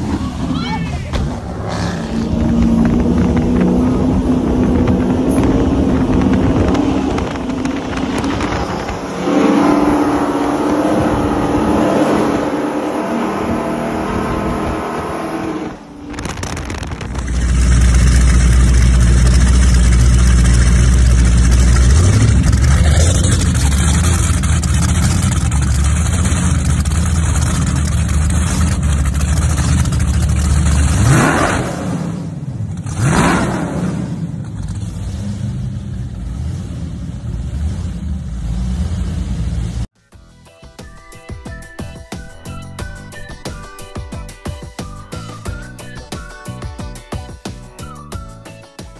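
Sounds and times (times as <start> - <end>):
speedboat engines: 0.0 - 31.1
engine revving: 1.2 - 39.9.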